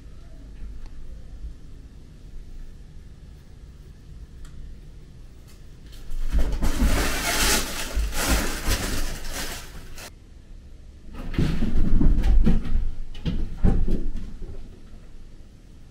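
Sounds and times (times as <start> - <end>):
fabric tunnel rustling: 6.0 - 10.1.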